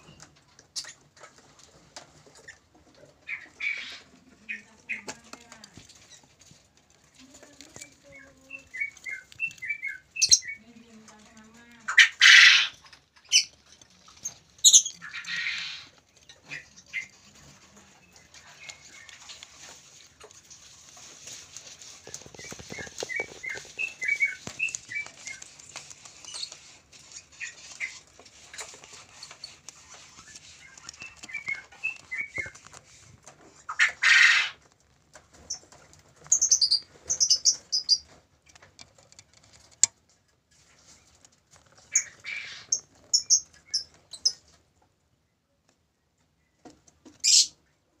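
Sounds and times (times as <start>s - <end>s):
birds peeping softly: 0.0s - 48.0s
birds screeching harshly: 3.3s - 5.0s, 11.9s - 13.6s, 14.6s - 16.0s, 33.7s - 34.6s, 41.9s - 44.4s, 47.2s - 47.6s.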